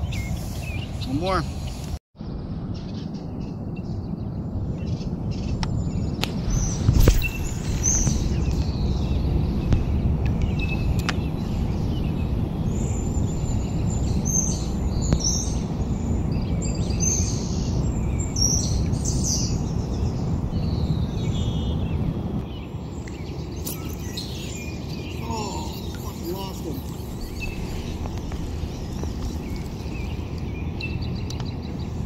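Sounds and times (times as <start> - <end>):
songbirds chirping and singing: 0.0 - 2.0, 2.7 - 32.0
steady low rumble: 0.0 - 32.0.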